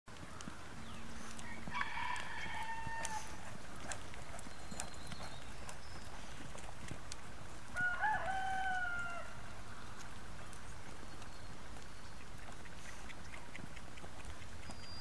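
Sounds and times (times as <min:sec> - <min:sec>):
horse hooves on dirt: 0:00.1 - 0:15.0
rooster crowing: 0:01.4 - 0:03.4, 0:07.7 - 0:09.4.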